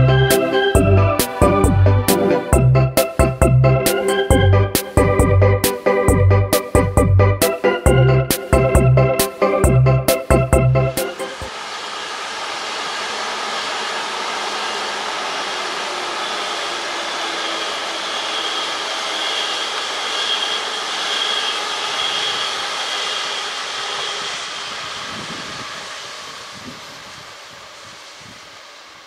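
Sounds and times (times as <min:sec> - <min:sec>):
train wheels and fans rushing: 0:00.0 - 0:29.0
faint high whine: 0:11.2 - 0:29.0.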